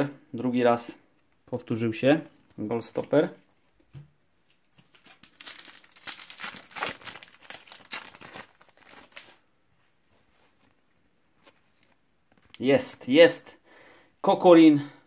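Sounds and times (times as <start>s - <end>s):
wrapper being torn and crinkled: 4.8s - 9.4s.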